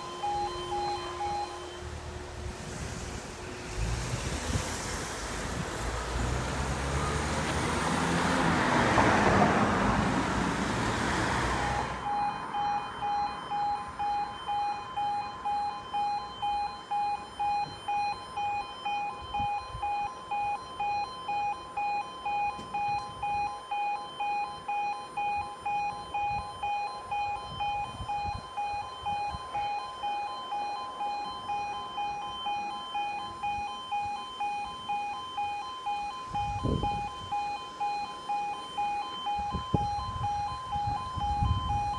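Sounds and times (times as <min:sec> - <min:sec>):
car tyre and road noise: 0:00.0 - 0:41.9
two-tone crossing alarm: 0:00.0 - 0:41.9.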